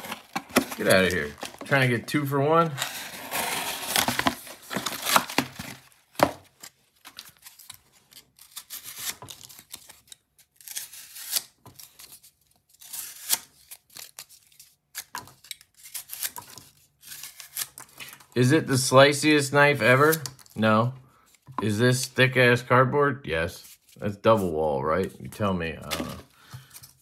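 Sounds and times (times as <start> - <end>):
knife slicing cardboard: 2.8 - 6.3.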